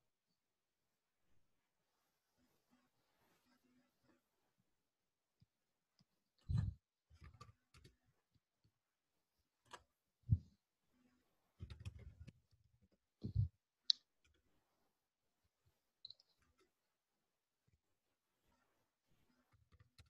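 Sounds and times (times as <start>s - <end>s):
faint clicks and dull knocks: 11.6s - 14.4s.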